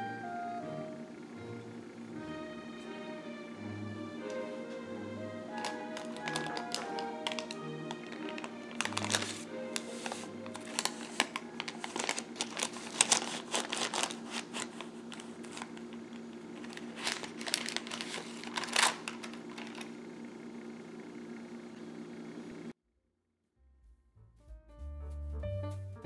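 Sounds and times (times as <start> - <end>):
faint steady hum: 0.0 - 22.8
parchment paper crinkling: 5.4 - 20.0.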